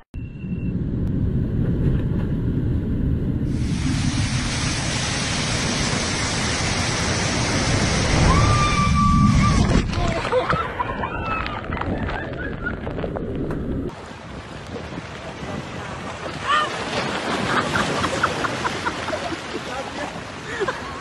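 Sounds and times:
waterfall roaring: 0:03.5 - 0:10.2.

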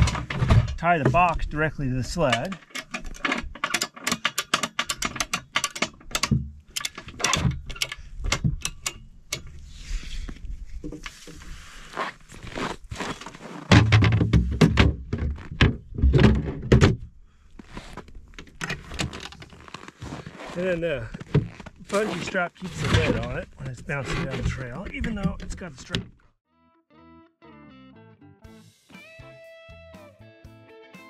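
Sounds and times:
strap buckles clicking: 0:02.0 - 0:09.6.

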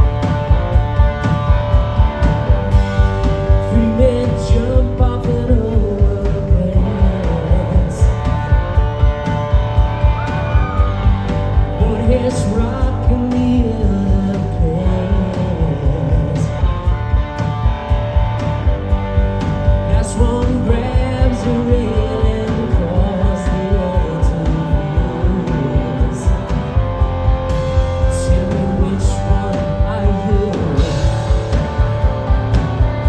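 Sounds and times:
rock band playing: 0:00.0 - 0:33.0
man singing: 0:03.5 - 0:09.0, 0:10.8 - 0:16.8, 0:19.8 - 0:26.6, 0:27.8 - 0:31.6.

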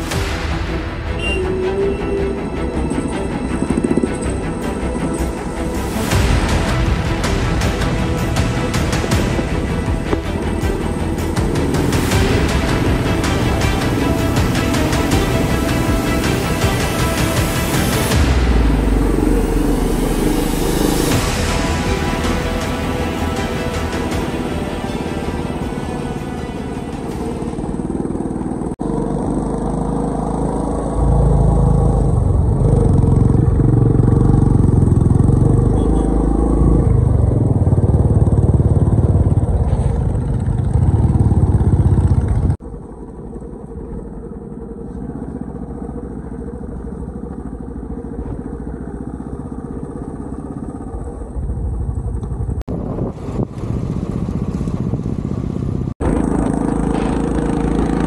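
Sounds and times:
motorcycle running: 0:00.0 - 0:58.0.

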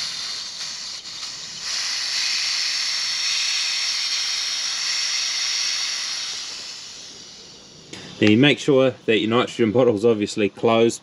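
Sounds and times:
pressurised gas hissing from pipes: 0:00.0 - 0:08.6.

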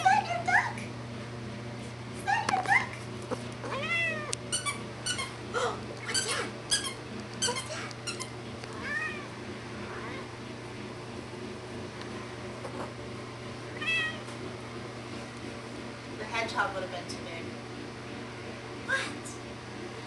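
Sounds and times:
cat meowing: 0:03.6 - 0:04.4, 0:08.8 - 0:09.3, 0:13.7 - 0:14.3
cat squeaks: 0:03.7 - 0:05.4, 0:06.0 - 0:09.2.

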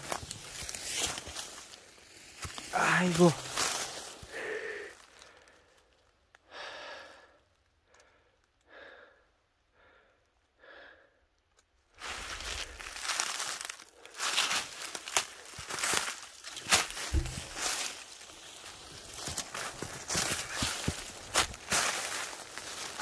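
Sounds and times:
rustling and crunching: 0:00.0 - 0:04.3, 0:11.9 - 0:23.0
person exhaling heavily: 0:04.2 - 0:05.4.

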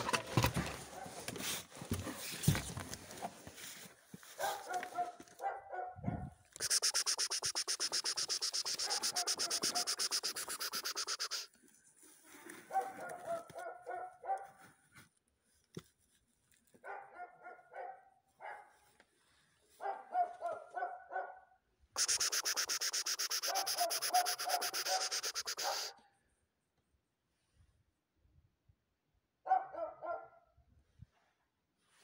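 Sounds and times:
dog barking short yaps: 0:04.4 - 0:07.3, 0:08.3 - 0:11.5, 0:23.2 - 0:26.0
loud rapid rhythmic hiss: 0:06.6 - 0:11.5, 0:22.0 - 0:25.9.

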